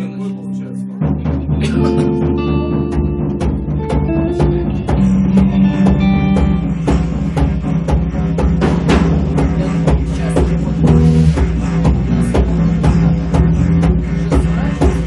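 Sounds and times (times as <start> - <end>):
short higher melodic notes: 0.0 - 6.8
drums beating steady rhythm: 0.0 - 15.0
sustained low notes: 0.0 - 15.0.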